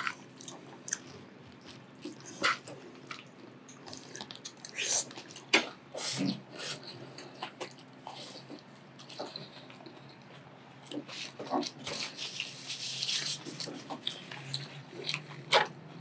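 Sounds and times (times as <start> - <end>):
chewing food: 0.0 - 5.9, 6.7 - 16.0
food crunching: 0.0 - 5.9, 6.7 - 16.0
paper napkin rustling: 11.2 - 15.6.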